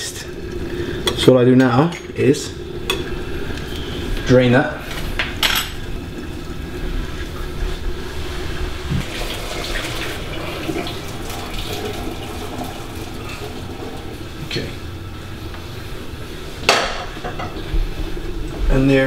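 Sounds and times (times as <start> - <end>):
water pouring into sink: 8.8 - 14.4.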